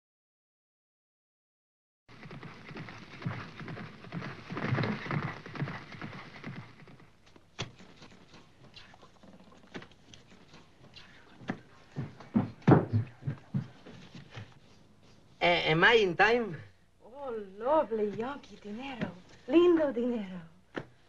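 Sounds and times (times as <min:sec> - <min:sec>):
horse hooves galloping: 0:02.1 - 0:14.7.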